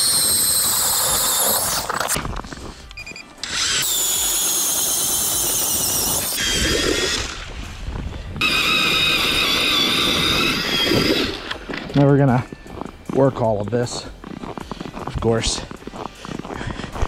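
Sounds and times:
ice auger motor whine: 0.0 - 2.5, 3.4 - 7.6, 8.4 - 11.9
drill bit grinding ice: 0.0 - 2.7, 3.4 - 7.6, 8.4 - 12.3.

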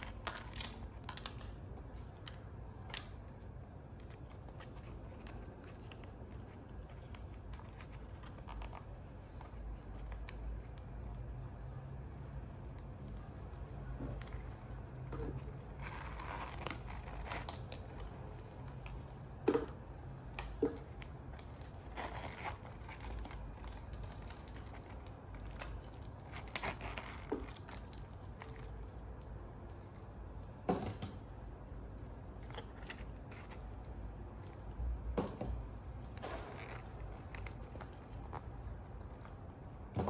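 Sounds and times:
leather pouch rustling and scraping: 14.0 - 19.2, 20.7 - 29.0, 36.2 - 39.6.

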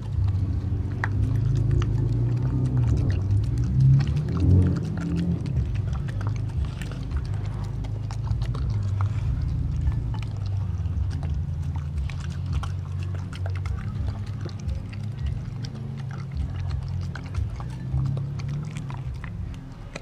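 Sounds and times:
dog chewing wet meat: 0.0 - 20.0
steady low rumble: 0.0 - 20.0.

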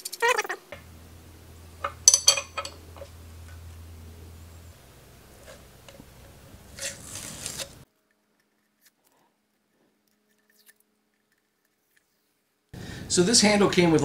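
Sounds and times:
short scraping rasp: 6.6 - 7.8.

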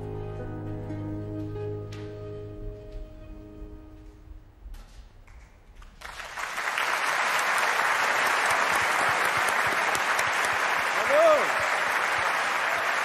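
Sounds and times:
audience applause: 5.8 - 13.0.

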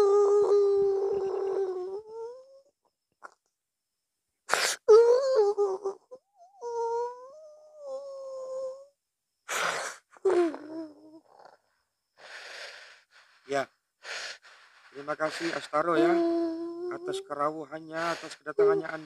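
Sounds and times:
man moaning and whimpering: 0.0 - 2.5, 15.1 - 19.0
sharp gasping breath: 12.2 - 15.7.

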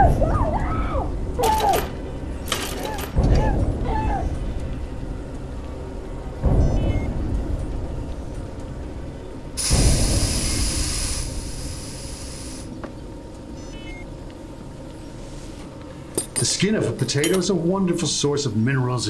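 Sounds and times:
low rumble: 0.0 - 15.3
deep low boom: 3.2 - 10.5
loud hiss: 9.6 - 12.7.

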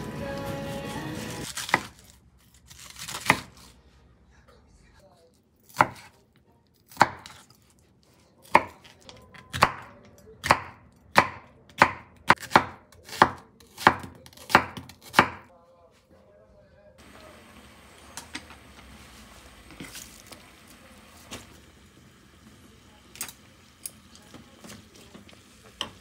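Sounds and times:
knife chopping on cutting board: 5.7 - 6.2, 6.9 - 7.5, 8.4 - 15.5.

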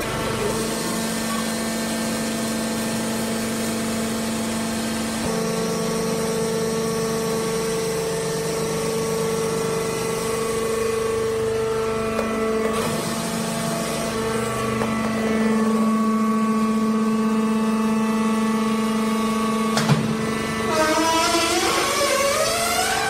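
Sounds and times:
baler motor and pump hum: 0.0 - 23.0.

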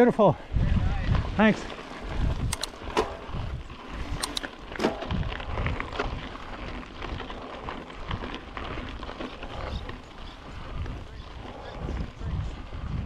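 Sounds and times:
bike tyres on dirt trail: 0.0 - 13.0
wind on microphone: 0.5 - 8.4, 9.4 - 13.0
bike rattling clicks: 1.8 - 10.9.

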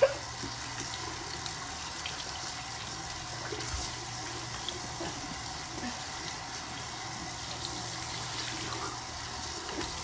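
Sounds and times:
tap water running into sink: 0.0 - 10.0.

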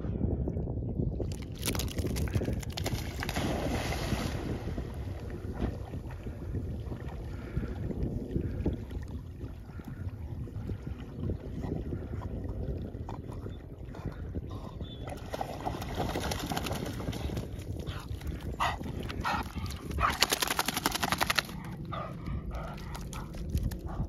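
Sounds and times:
wind rumble on microphone: 0.0 - 24.0
dog splashing out of water: 1.3 - 5.0.

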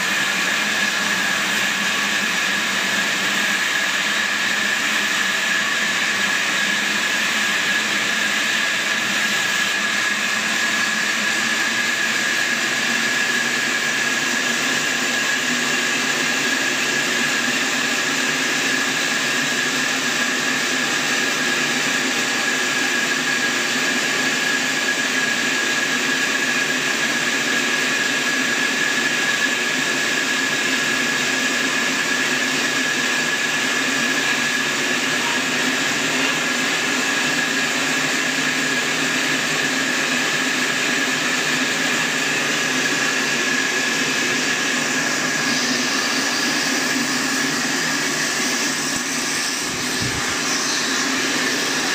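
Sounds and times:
steady high saw whine: 0.0 - 51.9
band saw cutting log: 40.4 - 51.9.

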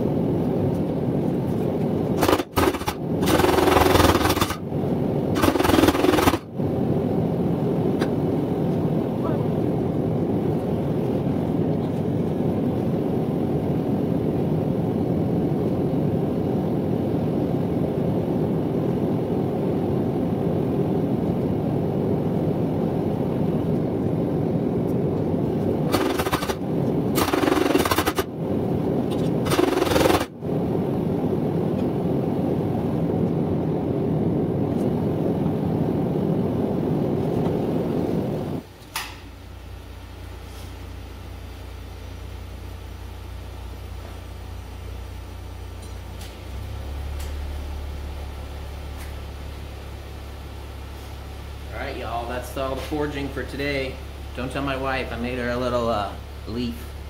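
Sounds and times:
forge burner roaring: 0.0 - 57.0
hissing bursts: 2.1 - 4.7, 5.4 - 6.5, 25.8 - 28.4, 29.1 - 30.3.

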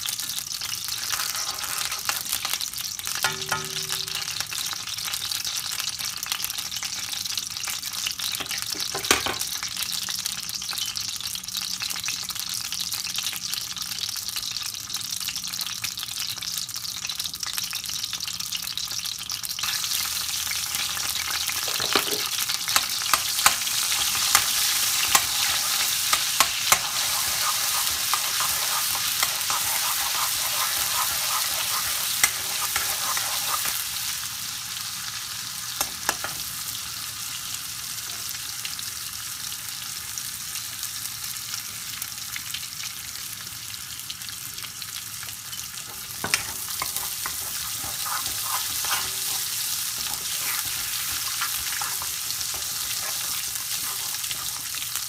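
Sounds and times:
hot oil sizzling: 0.0 - 55.0
metal spoon scraping pan: 1.0 - 2.3, 3.2 - 4.6, 21.5 - 33.8, 45.9 - 54.8.

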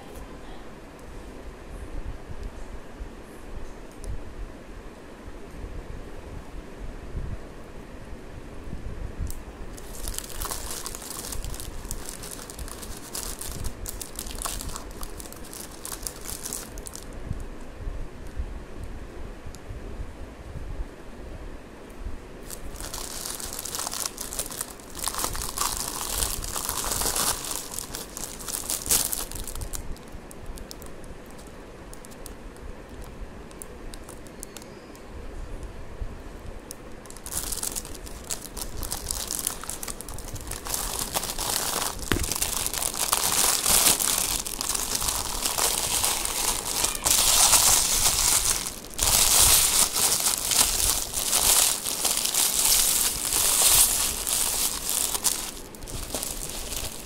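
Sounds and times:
plastic and paper packaging crinkling: 9.7 - 17.2, 22.4 - 34.7, 36.7 - 57.0.

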